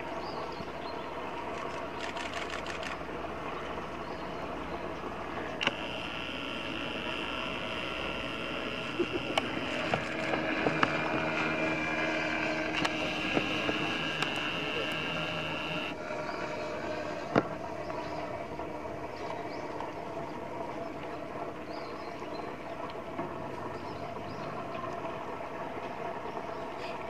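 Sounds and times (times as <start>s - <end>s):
steady background hum: 0.0s - 27.0s
camera shutter clicks: 1.6s - 3.0s.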